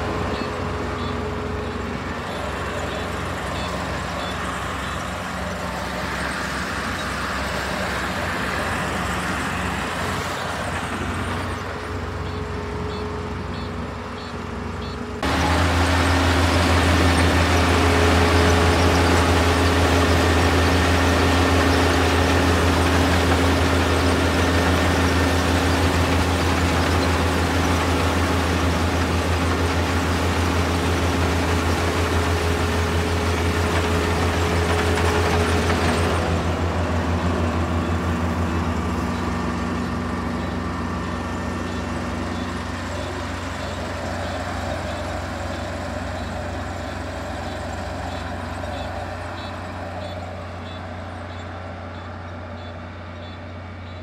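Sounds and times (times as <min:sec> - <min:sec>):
combine harvester engine running: 0:00.0 - 0:54.0.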